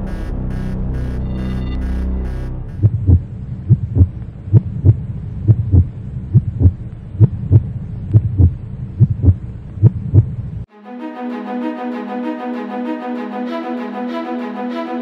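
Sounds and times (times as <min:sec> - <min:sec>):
steady low drone: 0:00.0 - 0:09.4
heartbeat thumps: 0:00.0 - 0:10.4.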